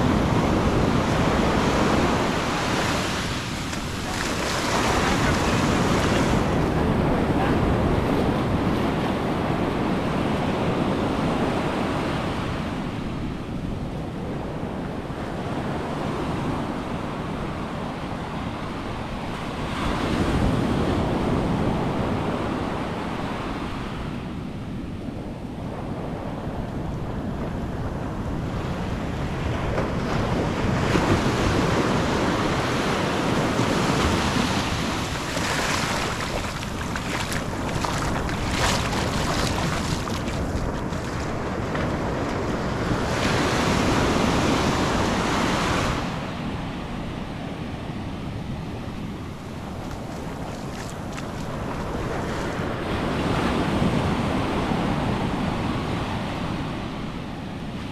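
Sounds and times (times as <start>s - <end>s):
ocean surf washing over sand: 0.0s - 57.9s.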